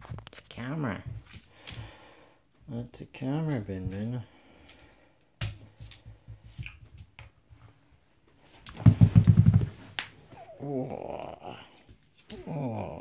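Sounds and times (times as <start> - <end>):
puppy claws tapping on vinyl floor: 5.4 - 7.4, 8.6 - 10.1.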